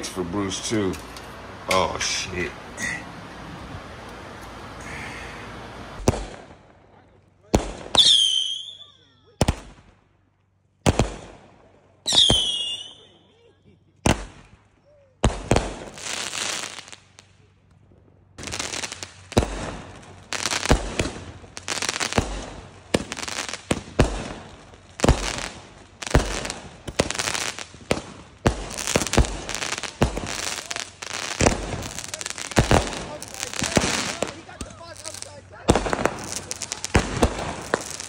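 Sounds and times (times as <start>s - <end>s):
fireworks crackling: 0.0s - 13.3s, 14.0s - 38.0s
fireworks bangs: 5.7s - 10.1s, 10.8s - 13.2s, 14.0s - 17.4s, 18.4s - 38.0s.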